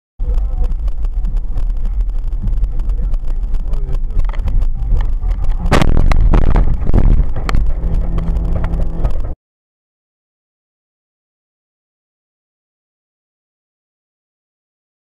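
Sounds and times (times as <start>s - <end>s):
car engine: 0.2s - 9.4s
road rumble: 0.2s - 9.4s
loud collision crash: 5.5s - 9.4s.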